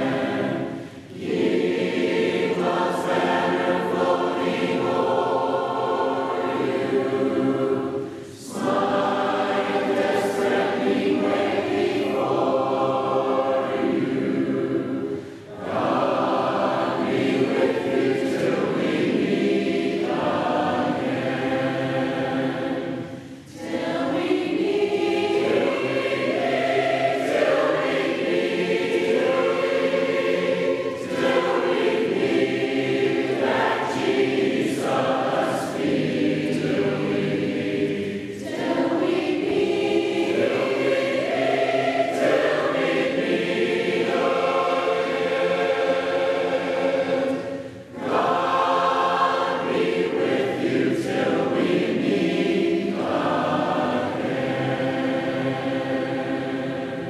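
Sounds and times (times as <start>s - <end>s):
choir singing a hymn: 0.0s - 57.0s.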